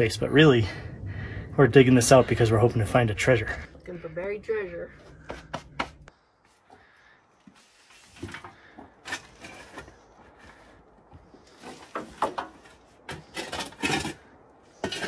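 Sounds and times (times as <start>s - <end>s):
shovel digging dirt and rock: 11.5s - 15.0s.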